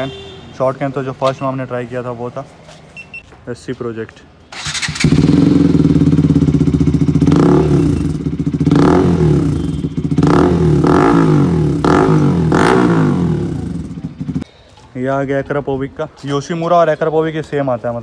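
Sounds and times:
motorcycle engine idling and revving: 0:04.5 - 0:14.5.

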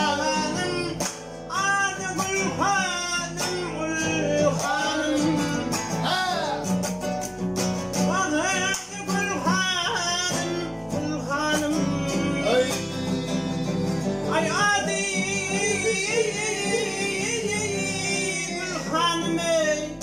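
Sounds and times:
man singing: 0:00.0 - 0:06.9, 0:08.0 - 0:20.0
strummed classical guitar: 0:00.0 - 0:20.0.

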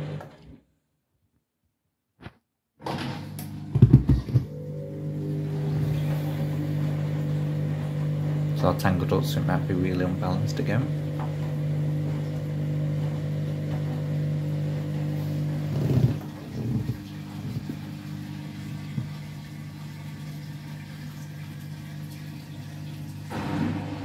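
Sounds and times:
washing machine knock: 0:03.0 - 0:04.6, 0:23.3 - 0:24.0
washing machine drum spinning: 0:03.0 - 0:24.0.

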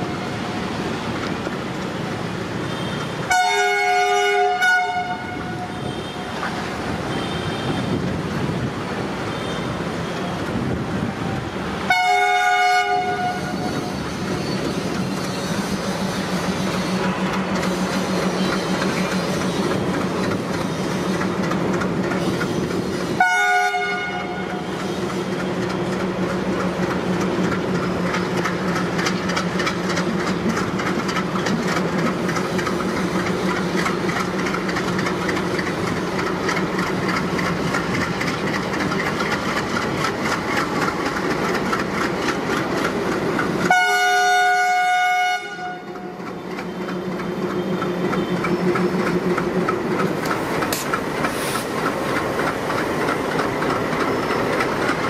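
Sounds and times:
diesel locomotive engines droning: 0:00.0 - 0:55.0
train wheels clattering on rails: 0:00.0 - 0:55.0
train air horn: 0:02.7 - 0:06.4, 0:11.9 - 0:13.7, 0:23.2 - 0:24.7, 0:43.6 - 0:46.2.

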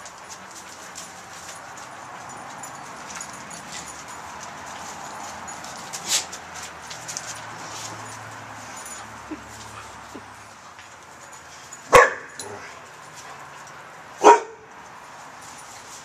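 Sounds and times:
dog barking: 0:11.9 - 0:12.7, 0:14.2 - 0:14.7.

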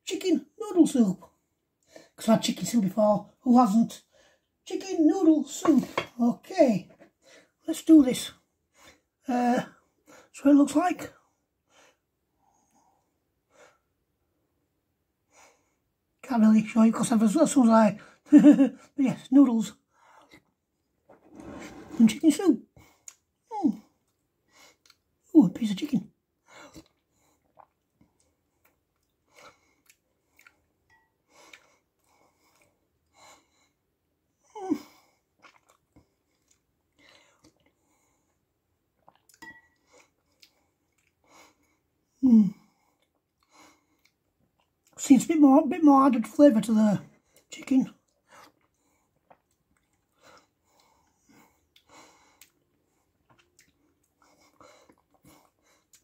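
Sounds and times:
person chewing and sipping soup: 0:20.1 - 0:22.0, 0:22.9 - 0:25.2, 0:26.4 - 0:33.2, 0:34.8 - 0:45.0, 0:47.1 - 0:56.0
soft breaths and mouth noises: 0:26.4 - 0:45.0, 0:47.1 - 0:56.0.

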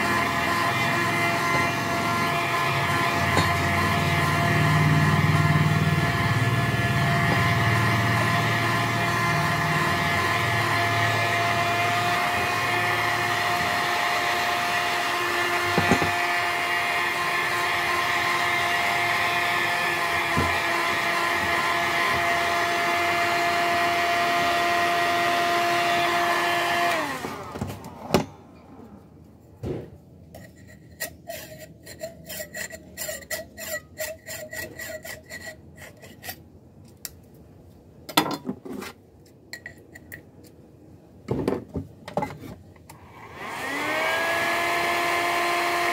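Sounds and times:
heat gun blowing with fan whine: 0:00.0 - 0:29.0, 0:42.9 - 0:45.9.

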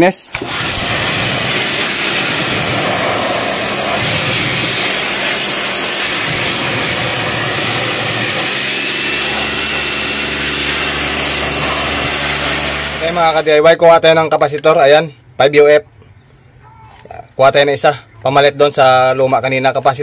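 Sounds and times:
pressure washer spraying: 0:00.3 - 0:13.6.

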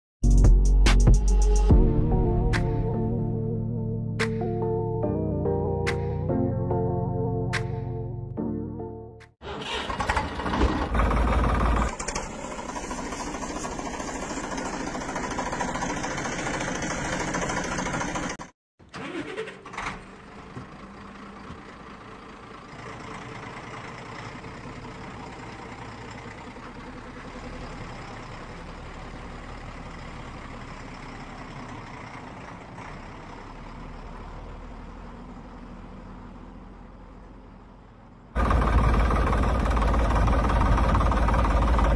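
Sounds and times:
engine starting with loud bursts: 0:09.4 - 0:20.3, 0:38.4 - 0:41.9
quieter engine running: 0:09.6 - 0:18.5, 0:19.8 - 0:41.9.

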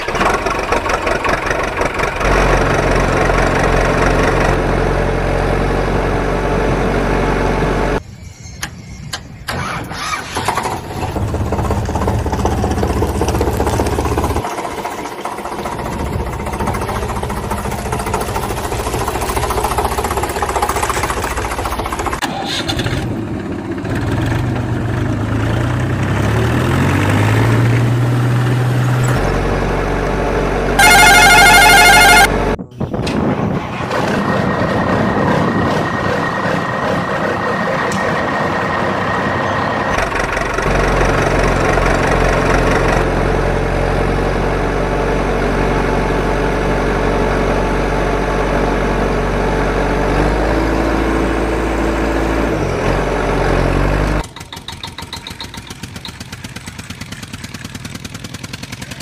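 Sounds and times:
toy engine sound effects: 0:30.8 - 0:32.3
short loud warbling tone: 0:30.8 - 0:32.6.

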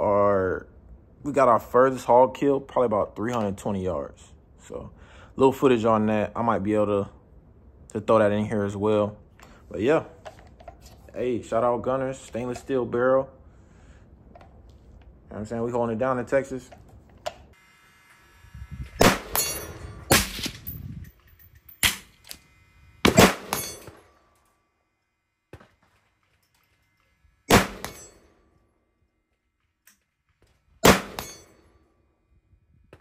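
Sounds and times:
gunshots with echo: 0:30.8 - 0:31.3.

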